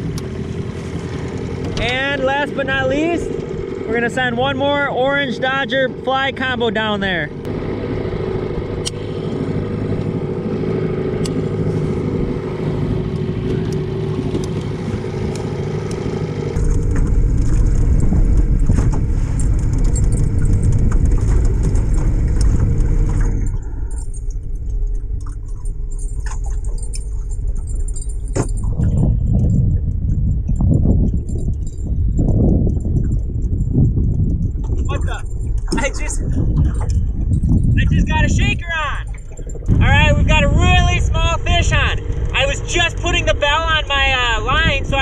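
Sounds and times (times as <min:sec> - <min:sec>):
low rumble: 0:00.0 - 0:45.0
outboard motor running: 0:00.0 - 0:45.0
light clinks and jingling: 0:23.5 - 0:37.9.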